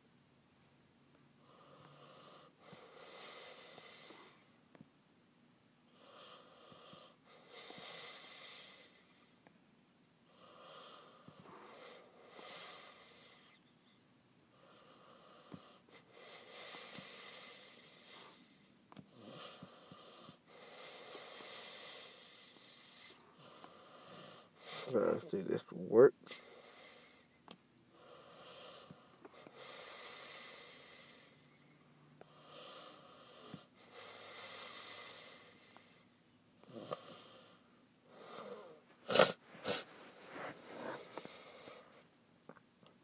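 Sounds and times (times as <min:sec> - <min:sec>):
slow breathing: 0:01.5 - 0:04.5, 0:14.6 - 0:18.8, 0:28.0 - 0:36.2, 0:37.0 - 0:42.2.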